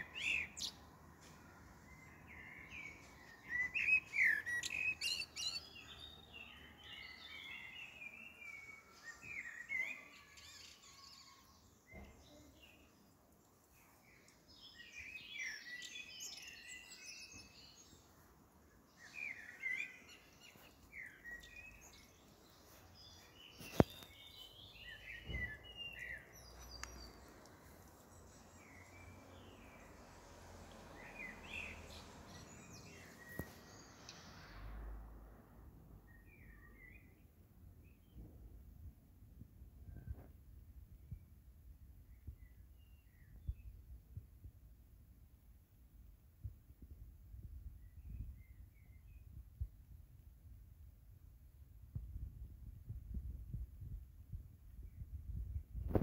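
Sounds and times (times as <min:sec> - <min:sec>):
songbirds chirping and singing: 0:00.0 - 0:35.0, 0:36.0 - 0:38.5.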